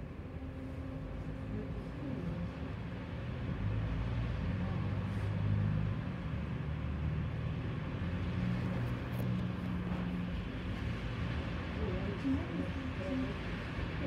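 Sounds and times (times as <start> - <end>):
tram hum and rumble: 0.0 - 14.0.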